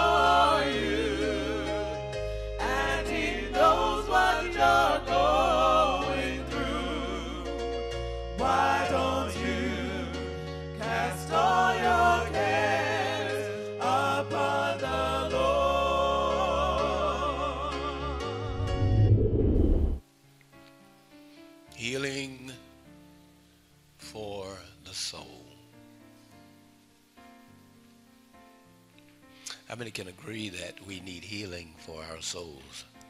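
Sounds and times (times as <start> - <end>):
person singing with vibrato: 0.0 - 7.7, 8.3 - 18.7
bass and keyboard chords: 0.0 - 13.0, 13.6 - 20.0.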